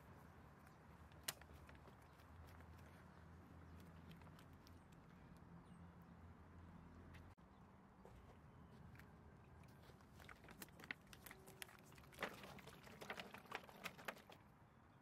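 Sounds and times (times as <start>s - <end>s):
liquid sloshing: 10.0s - 14.4s.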